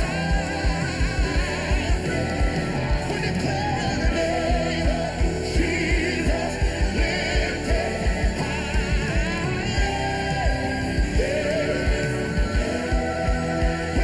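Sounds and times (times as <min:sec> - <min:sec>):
kick drum beat: 0:00.0 - 0:03.1
guitar: 0:00.0 - 0:14.0
people singing: 0:00.0 - 0:14.0.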